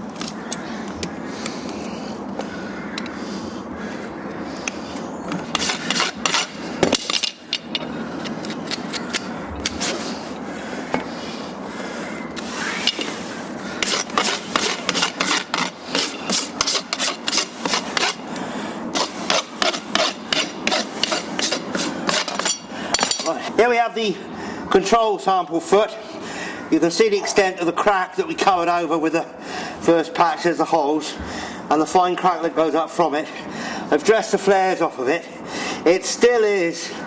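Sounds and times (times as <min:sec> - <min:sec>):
rasp filing hoof: 0:05.5 - 0:07.1, 0:13.8 - 0:18.2, 0:18.9 - 0:22.6.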